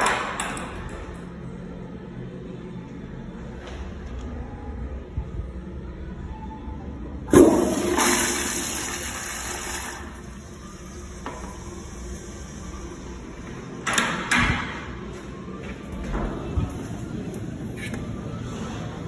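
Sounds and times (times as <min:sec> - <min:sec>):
toilet tank refilling: 0:07.3 - 0:13.3
toilet flushing: 0:07.3 - 0:13.5.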